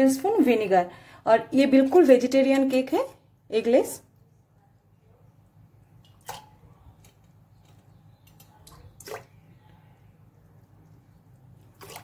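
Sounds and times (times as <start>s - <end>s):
low steady hum: 0.0s - 12.0s
liquid dripping and splashing: 5.9s - 9.8s, 10.6s - 12.0s.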